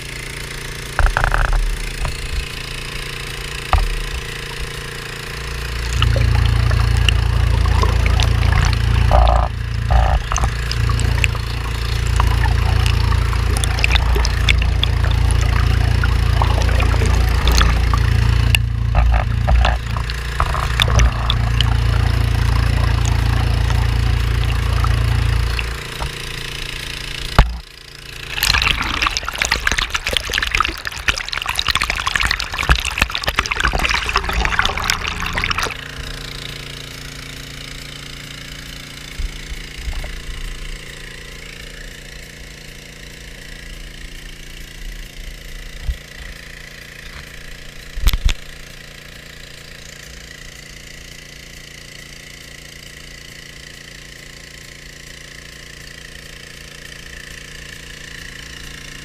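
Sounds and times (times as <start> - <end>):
water rushing through sluice box: 0.0 - 42.1
gas engine running: 0.0 - 47.9.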